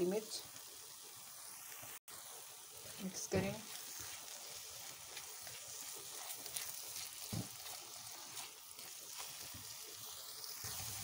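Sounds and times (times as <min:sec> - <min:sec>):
masala sizzling in a wok: 0:00.0 - 0:11.0
spatula scraping: 0:02.8 - 0:11.0.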